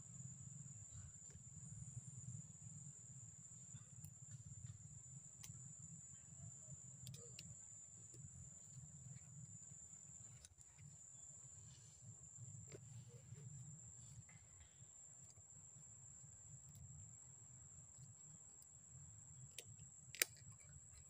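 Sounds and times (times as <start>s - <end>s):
faint high-pitched whine: 0.0s - 21.0s
faint clicks: 7.0s - 8.3s.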